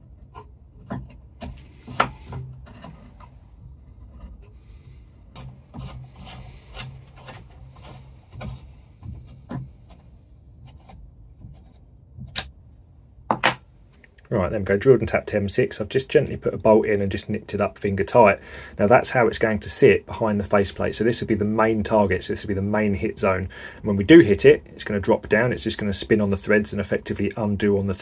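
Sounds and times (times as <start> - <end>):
hand tap scraping and clicking: 0.3 - 3.4.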